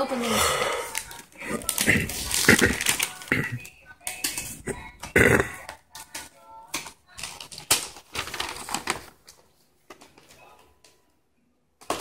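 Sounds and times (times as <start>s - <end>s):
wrapping paper tearing and crumpling: 0.9s - 4.7s, 6.8s - 9.3s.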